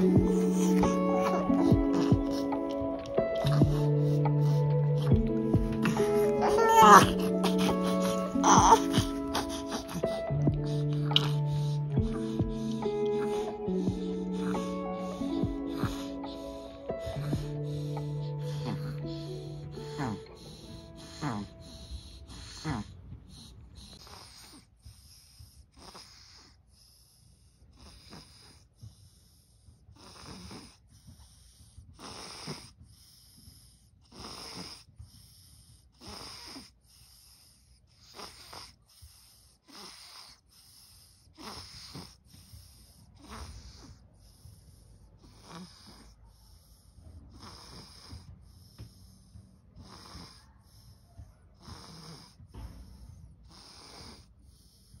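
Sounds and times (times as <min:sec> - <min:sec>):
baby breathing wheezily: 0:00.0 - 0:27.1.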